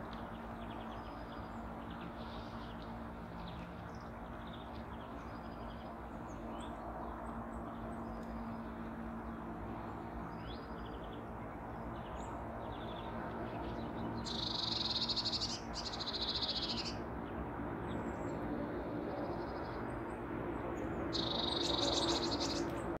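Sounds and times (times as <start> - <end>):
songbird trilling: 14.2 - 17.0, 21.1 - 22.8
high bird chirps: 14.3 - 16.9, 21.2 - 22.7.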